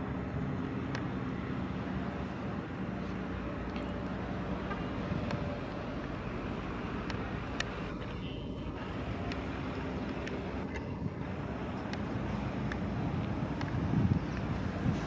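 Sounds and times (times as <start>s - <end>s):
diesel locomotive engine drone: 0.0s - 15.0s
faint clicks: 7.0s - 8.2s, 9.2s - 11.0s, 11.7s - 14.6s.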